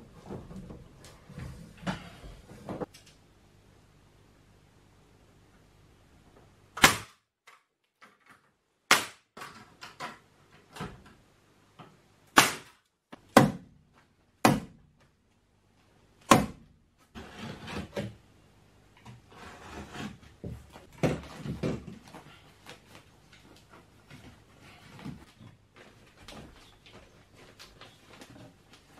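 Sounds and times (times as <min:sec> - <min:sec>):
rustling handling noise: 0:20.6 - 0:28.9.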